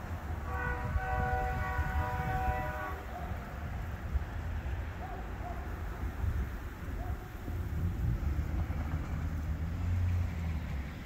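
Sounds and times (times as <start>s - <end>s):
road traffic: 0.0s - 11.0s
wind rumble: 0.0s - 11.0s
locomotive air horn chord: 0.4s - 3.2s.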